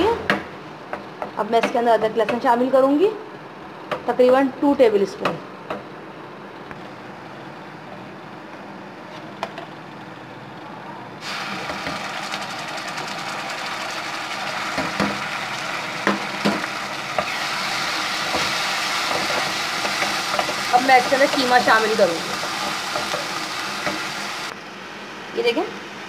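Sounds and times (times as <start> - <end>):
oil and onions sizzling: 11.2 - 24.5.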